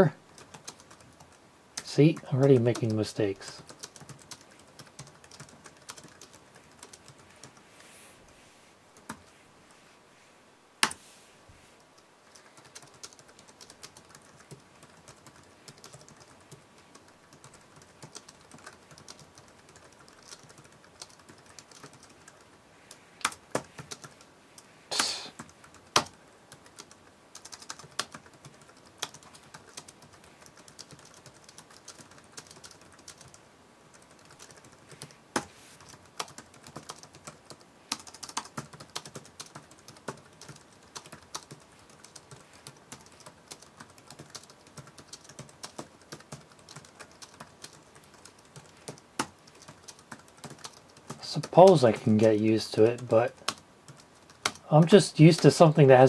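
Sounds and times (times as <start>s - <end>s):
typing on a keyboard: 0.3s - 7.6s, 12.3s - 22.5s, 23.2s - 24.2s, 24.9s - 54.6s.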